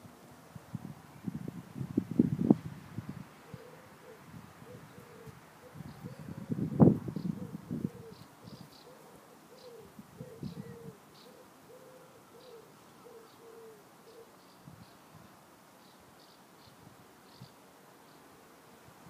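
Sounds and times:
dove cooing: 0:03.4 - 0:14.4.

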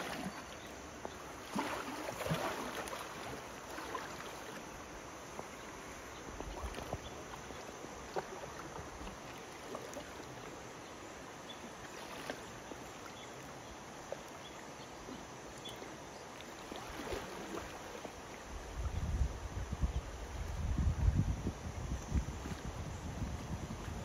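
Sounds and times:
elephant wading splashes: 0:00.0 - 0:18.5
river water lapping and trickling: 0:00.0 - 0:24.0.

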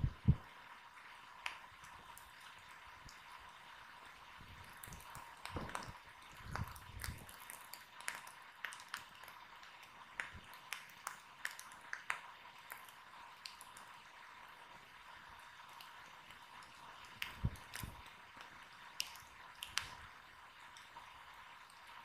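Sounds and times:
wood fire crackling: 0:00.0 - 0:22.0.

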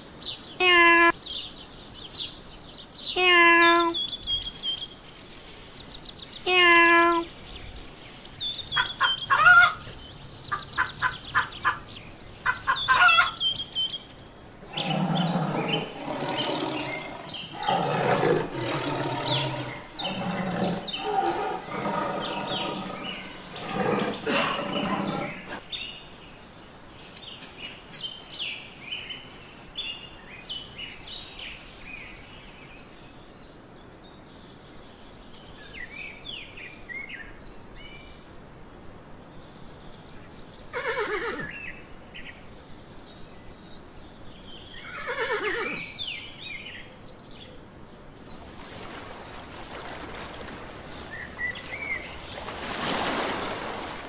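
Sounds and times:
small birds chirping faintly: 0:00.0 - 0:54.0
rooster calling: 0:08.8 - 0:09.9
tiger growling and roaring: 0:14.6 - 0:25.6.

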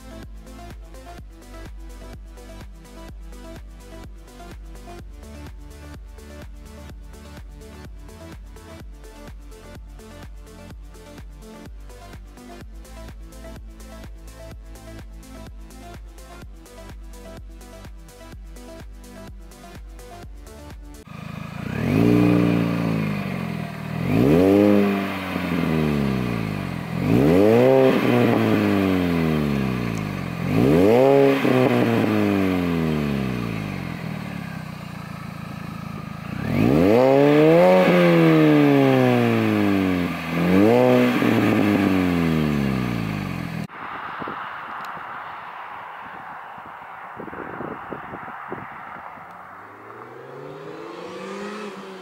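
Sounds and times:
faint outdoor background: 0:00.0 - 0:52.0
car engine revving: 0:21.1 - 0:52.0.

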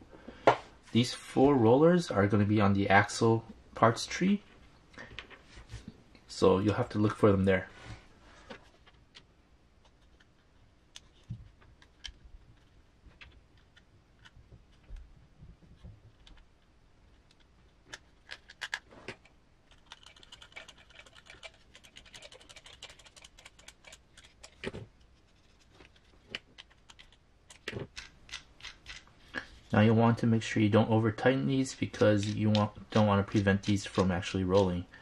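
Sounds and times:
clicks of small plastic parts: 0:17.2 - 0:24.7, 0:25.8 - 0:29.1.

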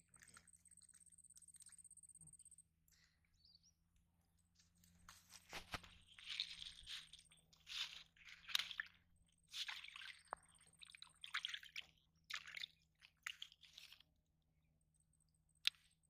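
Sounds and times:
wet bag splashing in water: 0:05.3 - 0:14.0.

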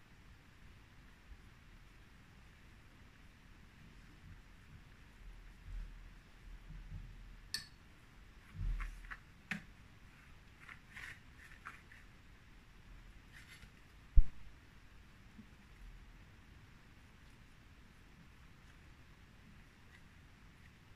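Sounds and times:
soft scraping and handling: 0:08.4 - 0:12.2, 0:13.2 - 0:14.0.

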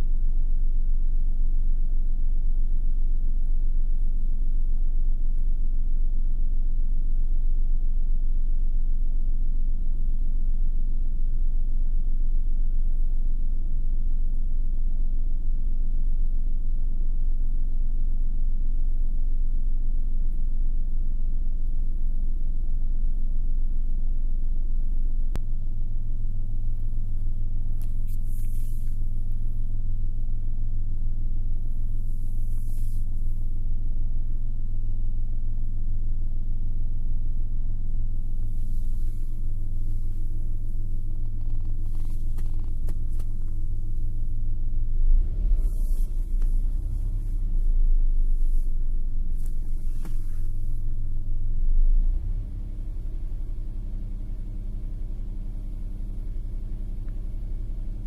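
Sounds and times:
car engine idling: 0:00.0 - 0:58.0
brief rustles: 0:27.8 - 0:29.1, 0:41.2 - 0:43.6, 0:48.3 - 0:50.9.

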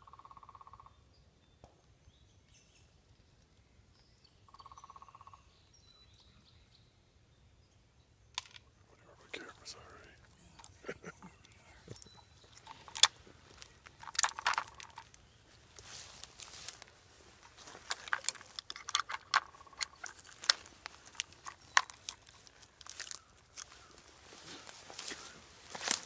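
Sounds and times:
clothing and strap rustling: 0:09.4 - 0:26.0
sharp clicks and scrapes: 0:11.5 - 0:15.2, 0:17.4 - 0:23.7.

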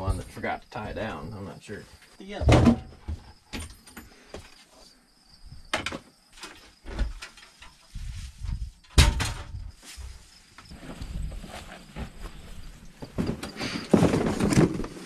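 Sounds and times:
tools knocking and clattering: 0:02.4 - 0:04.5, 0:05.7 - 0:07.8, 0:08.8 - 0:09.6.

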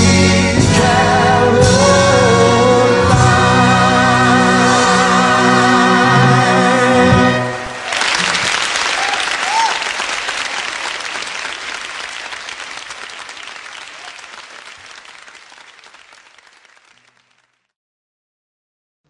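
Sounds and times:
audience applause: 0:07.6 - 0:17.6.

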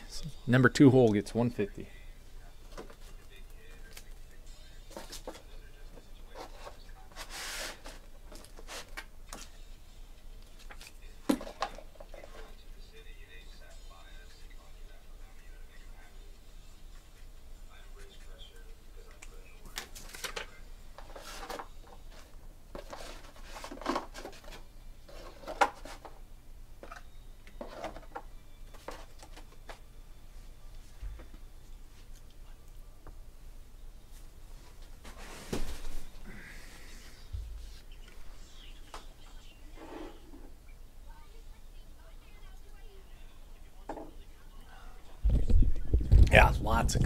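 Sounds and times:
faint clicks and handling noises: 0:02.7 - 0:06.8, 0:18.0 - 0:23.0.

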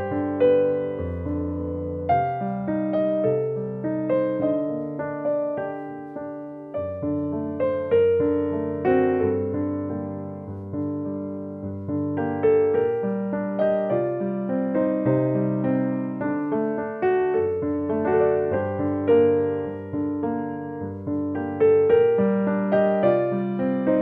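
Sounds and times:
piano music: 0:00.0 - 0:24.0.

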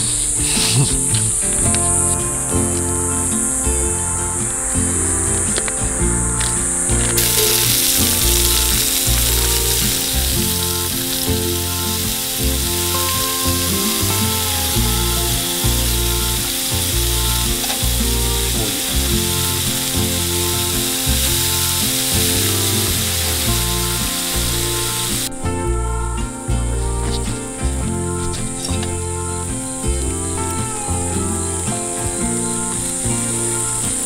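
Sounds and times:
background music with low bass: 0:00.0 - 0:34.0
beans sizzling in hot oil: 0:07.2 - 0:25.3.

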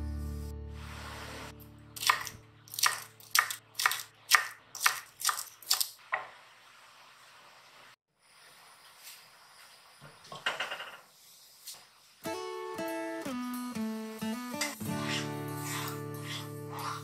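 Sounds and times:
background music: 0:00.0 - 0:03.5, 0:12.3 - 0:17.0.

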